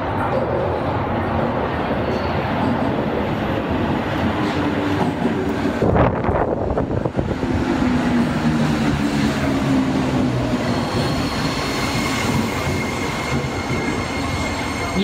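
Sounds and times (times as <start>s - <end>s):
rush of passing train: 0.0s - 15.0s
subway train rumbling: 0.0s - 15.0s.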